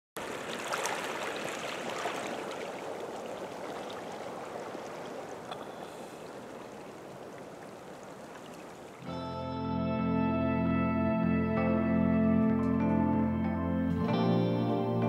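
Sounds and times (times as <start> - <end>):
stream running over pebbles: 0.2 - 9.0.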